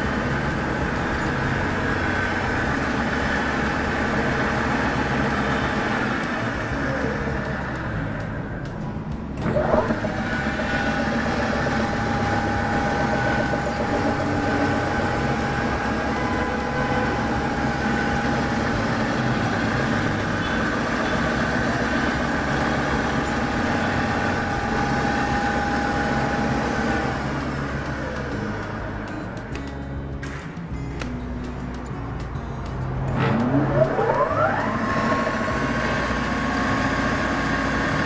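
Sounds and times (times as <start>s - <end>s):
pillar drill starting clunk: 9.4s - 15.2s
pillar drill motor whine: 9.4s - 27.8s, 33.1s - 38.0s.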